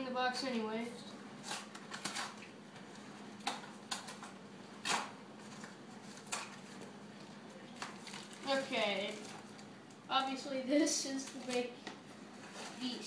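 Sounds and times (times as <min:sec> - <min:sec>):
pouch crinkling: 0:07.7 - 0:09.7.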